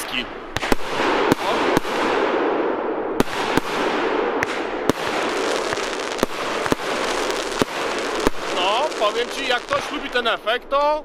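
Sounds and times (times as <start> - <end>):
firework crackling: 0.0 - 2.5, 3.2 - 10.7
sharp firework reports: 0.0 - 10.8.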